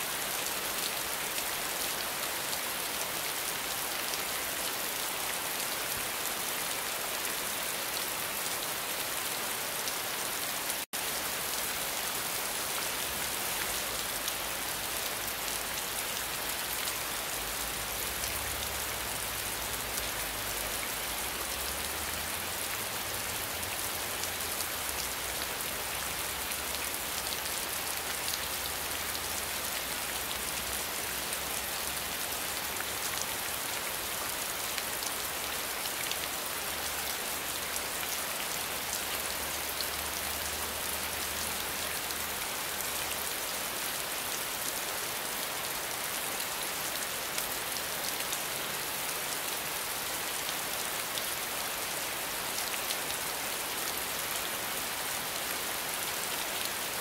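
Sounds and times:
steady rainfall: 0.0 - 57.0.

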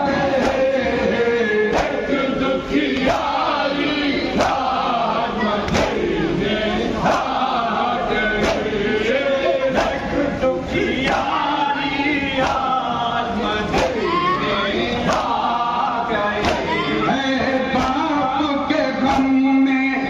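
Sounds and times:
men chanting in unison: 0.0 - 20.0
chest-beating slaps: 0.4 - 0.8, 1.7 - 2.2, 5.7 - 6.0, 8.4 - 8.8, 12.4 - 12.7, 13.7 - 14.0, 15.1 - 15.5, 16.4 - 16.7, 17.7 - 18.1.

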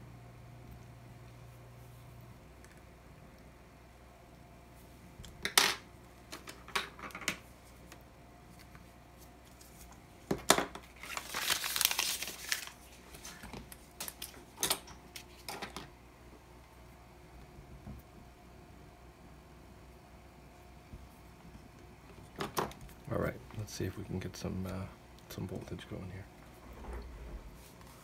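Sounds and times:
crinkling and rustling: 6.3 - 15.9.

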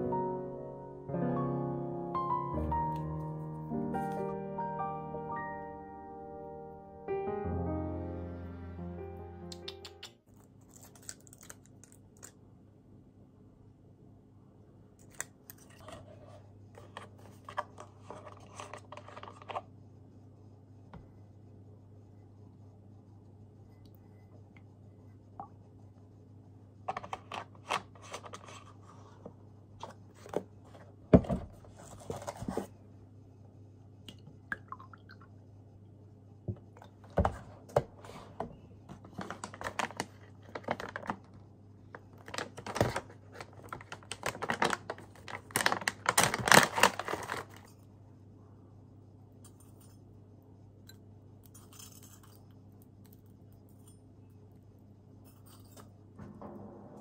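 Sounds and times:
low steady hum: 0.0 - 57.0
plastic bag crinkling: 39.0 - 41.3, 42.0 - 47.7.

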